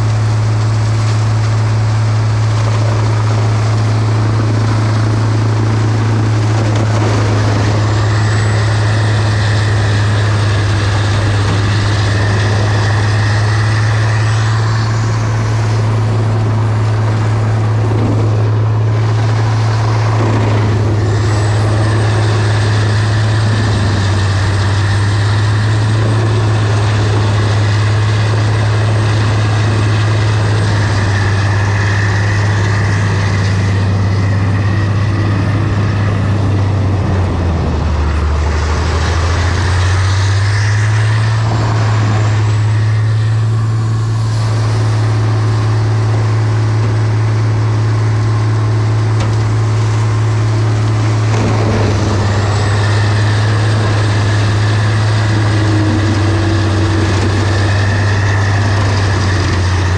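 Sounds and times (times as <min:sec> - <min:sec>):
diesel truck engine under load: 0:00.0 - 0:59.9.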